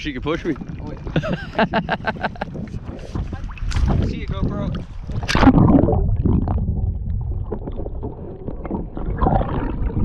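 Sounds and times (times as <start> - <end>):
muffled underwater rumbling: 0.0 - 10.0
splash into water: 3.0 - 4.1, 5.1 - 6.5.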